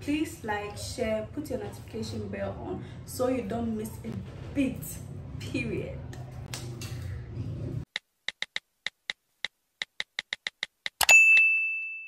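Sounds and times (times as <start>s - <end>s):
low hum: 0.0s - 7.9s.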